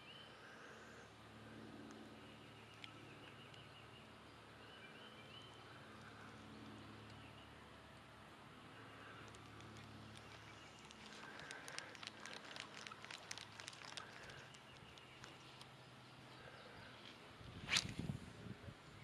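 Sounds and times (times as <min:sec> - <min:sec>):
faint clicks and ticks: 0:09.0 - 0:15.8.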